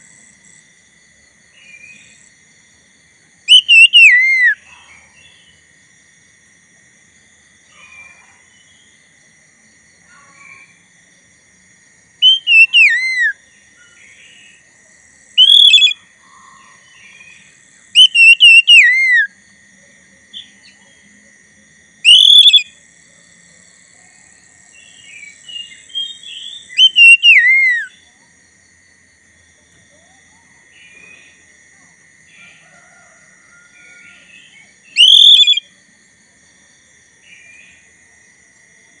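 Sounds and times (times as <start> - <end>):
bird whistling song: 3.5 - 4.6, 12.2 - 13.4, 15.4 - 16.0, 18.0 - 19.3, 22.0 - 22.7, 25.1 - 28.0, 34.9 - 35.7
soft bird chirps: 12.2 - 14.6, 24.8 - 27.9, 34.9 - 35.6.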